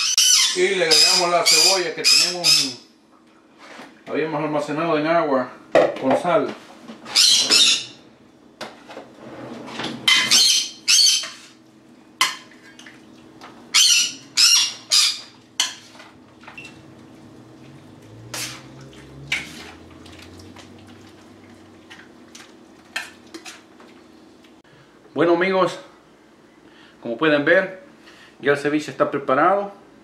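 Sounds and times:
utensil scraping against a bowl: 11.1s - 11.6s, 14.7s - 16.2s, 18.2s - 19.9s.

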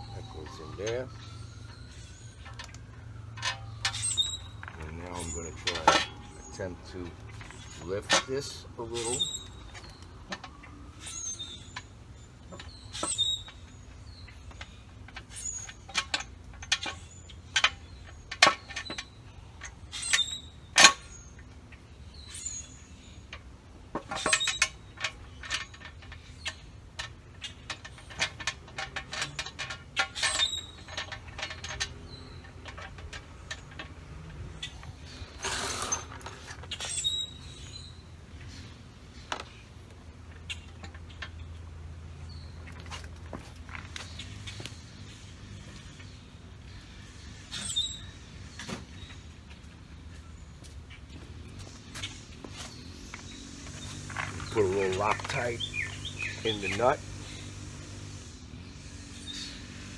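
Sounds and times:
metal bolts and nuts clinking: 0.1s - 21.4s, 22.2s - 38.6s, 52.0s - 57.5s.

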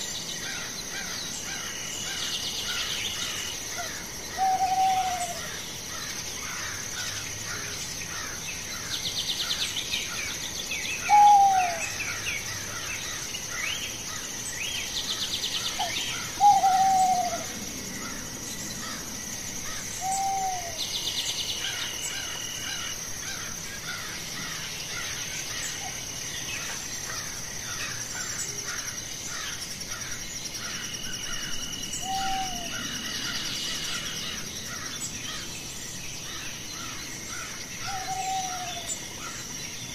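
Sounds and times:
small birds chirping: 0.0s - 39.9s
birds calling low falling notes: 2.6s - 5.6s, 11.0s - 12.6s, 14.8s - 28.6s, 31.3s - 35.6s.

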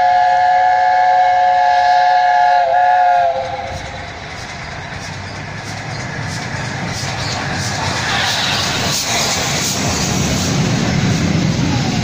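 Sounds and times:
steam locomotive chime whistle: 0.0s - 3.8s
rumble of approaching train: 0.0s - 12.0s.

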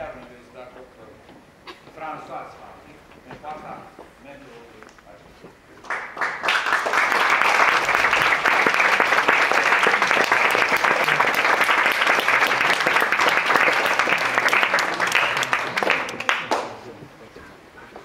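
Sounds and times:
audience applause: 5.8s - 17.0s.

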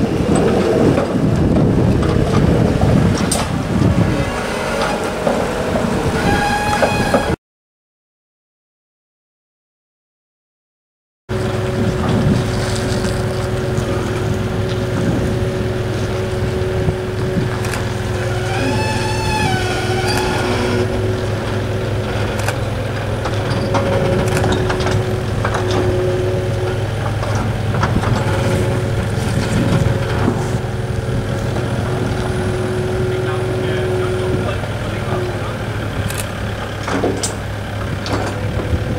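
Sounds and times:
engine humming with whine: 0.0s - 7.4s, 11.3s - 38.9s
rig knocking and rattling: 17.3s - 30.8s
wavering tone: 18.1s - 21.3s.

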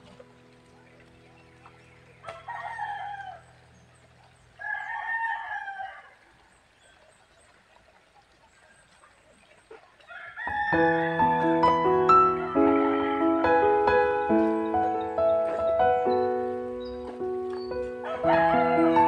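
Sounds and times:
background music with piano: 0.0s - 3.8s, 10.5s - 19.0s
rooster crowing: 2.3s - 3.5s, 4.6s - 6.3s, 10.1s - 11.8s, 18.0s - 19.0s.

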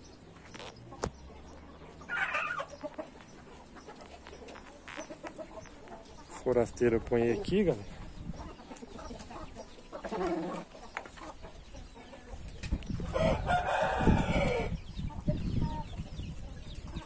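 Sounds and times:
rooster crowing: 13.1s - 14.7s.

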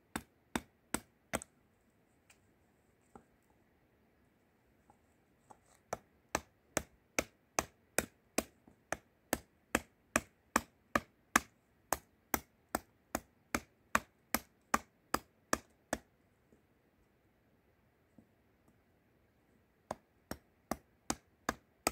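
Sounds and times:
hatchet chopping wood: 0.1s - 1.5s, 5.9s - 16.1s, 19.9s - 21.9s.

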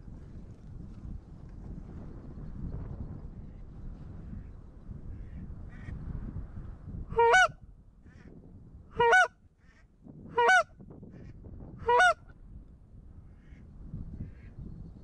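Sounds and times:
goose call honks: 7.1s - 7.6s, 9.0s - 9.3s, 10.3s - 10.7s, 11.8s - 12.2s.

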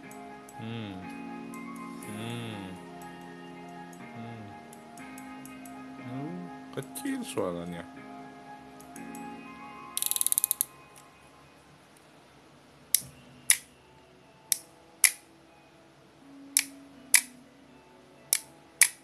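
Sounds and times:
fishing reel clicking: 10.0s - 10.7s.

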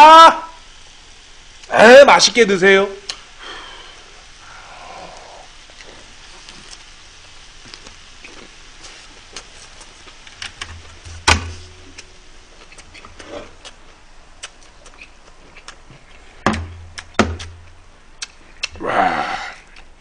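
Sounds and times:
crunchy wet chewing: 5.1s - 10.4s, 11.9s - 16.4s, 18.1s - 18.8s, 19.6s - 20.0s
sharp knock: 11.1s - 11.8s, 16.4s - 17.6s.

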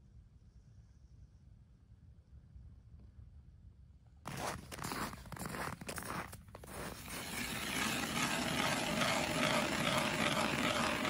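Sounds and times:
footsteps crunching on snow: 4.3s - 10.8s
hand ice auger grinding: 4.3s - 11.0s.

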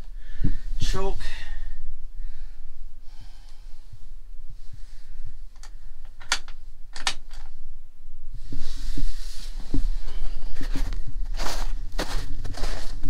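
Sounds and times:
low steady rumble: 0.0s - 13.0s
rustling and dull thumps: 8.4s - 13.0s.

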